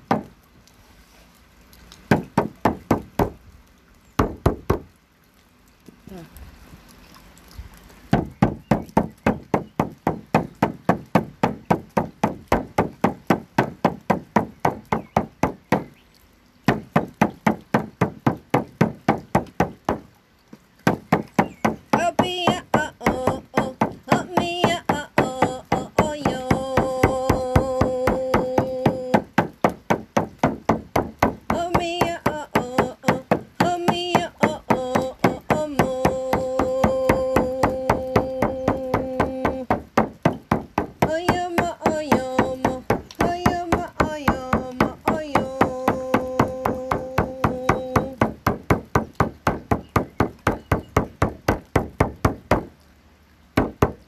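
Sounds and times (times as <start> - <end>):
frame drum beating: 8.2 - 15.9, 16.7 - 20.0, 20.9 - 52.7
woman chanting: 21.9 - 29.4, 31.5 - 39.8, 41.0 - 48.3.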